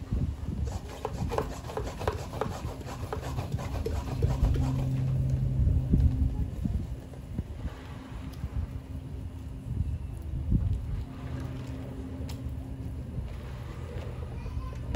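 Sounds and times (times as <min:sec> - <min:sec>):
low steady hum: 0:00.0 - 0:14.9
pump sprayer rasping strokes: 0:00.6 - 0:05.3.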